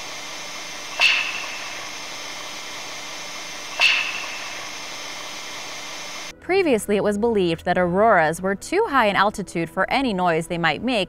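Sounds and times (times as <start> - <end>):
steady hiss: 0.0 - 6.3
sharp clap: 0.9 - 2.3, 3.4 - 6.3.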